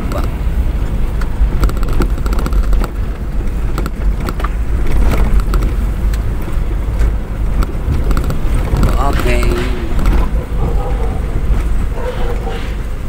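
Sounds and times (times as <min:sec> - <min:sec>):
rattles and knocks: 0:00.0 - 0:12.9
vehicle rumbling on rough concrete: 0:00.0 - 0:13.0.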